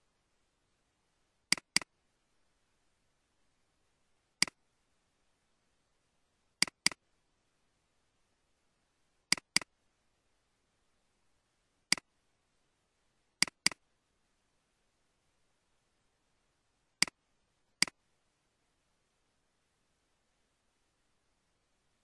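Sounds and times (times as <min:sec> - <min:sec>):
computer mouse clicks: 0:01.5 - 0:01.9, 0:06.6 - 0:07.0, 0:09.3 - 0:09.7, 0:11.9 - 0:12.1, 0:13.4 - 0:13.8.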